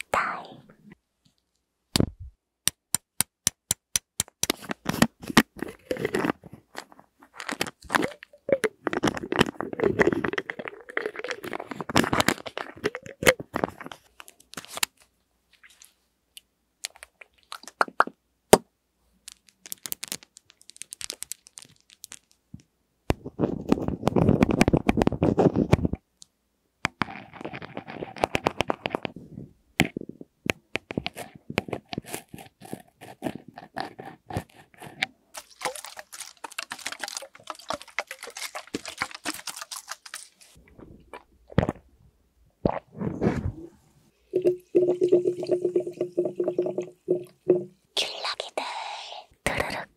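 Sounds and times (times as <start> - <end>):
plastic bottle cap twisting: 4.0 - 15.1, 19.2 - 22.4, 26.9 - 29.2, 30.8 - 41.8
water sloshing in plastic bottle: 7.3 - 14.8, 35.4 - 40.6.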